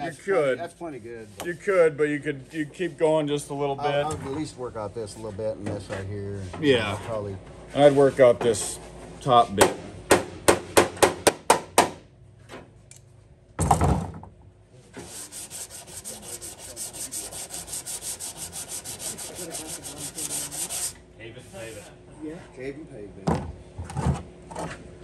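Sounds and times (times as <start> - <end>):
file scraping sheet steel: 15.0 - 21.9.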